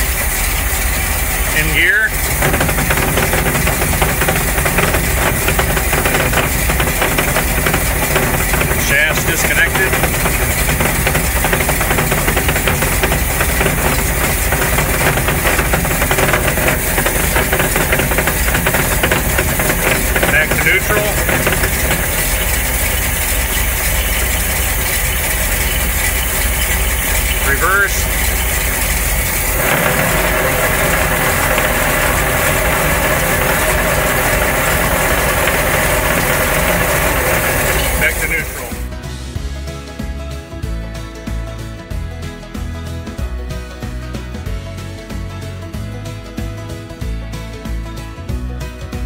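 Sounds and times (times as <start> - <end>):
boat engine idling: 0.0 - 39.0
gearbox knocking rattle: 0.0 - 39.0.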